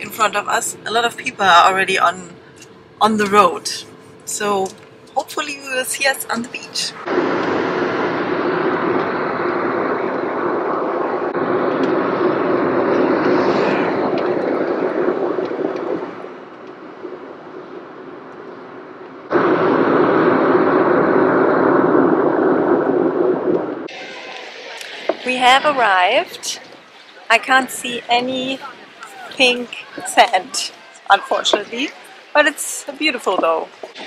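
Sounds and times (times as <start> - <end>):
car road and engine noise: 0.0 - 19.6.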